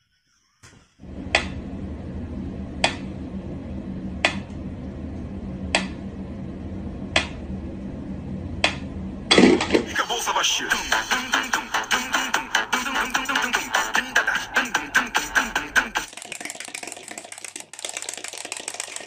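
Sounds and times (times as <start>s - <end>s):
low steady hum: 1.0s - 16.1s.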